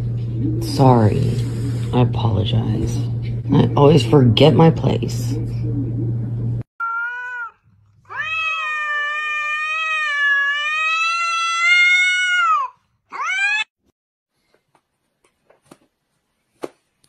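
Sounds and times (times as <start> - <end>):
cat yowling: 6.8 - 13.7.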